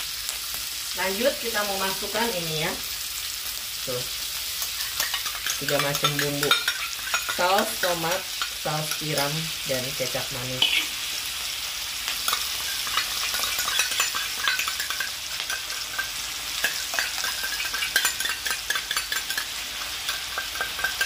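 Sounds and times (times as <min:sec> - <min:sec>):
food sizzling in hot oil: 0:00.0 - 0:21.0
metal spatula scraping a pan: 0:04.6 - 0:09.4, 0:10.5 - 0:11.0, 0:12.2 - 0:21.0.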